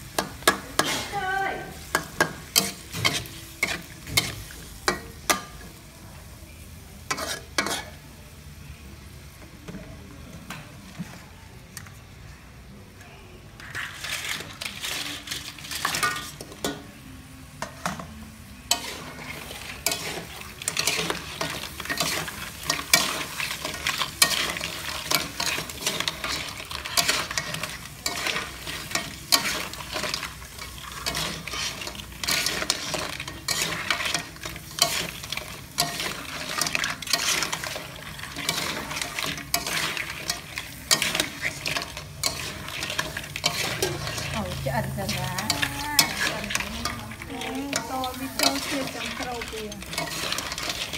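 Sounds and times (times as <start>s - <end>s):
food sizzling in a wok: 0.0s - 11.4s, 13.4s - 50.9s
metal spatula scraping pan: 0.2s - 1.2s, 1.9s - 4.5s, 7.1s - 8.0s, 13.6s - 16.9s, 18.6s - 50.9s.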